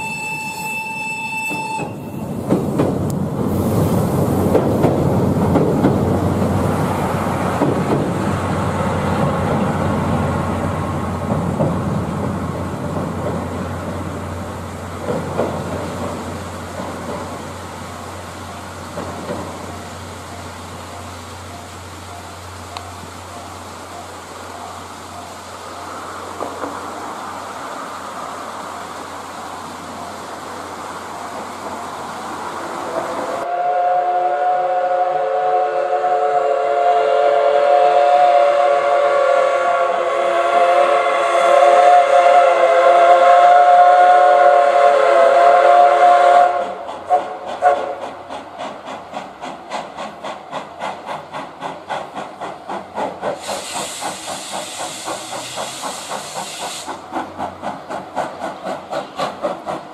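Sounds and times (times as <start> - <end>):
steam locomotive whistle: 0.0 - 2.4, 33.2 - 48.1
steam locomotive chuffing: 0.0 - 27.6, 28.6 - 59.9
steam hiss: 0.0 - 59.9.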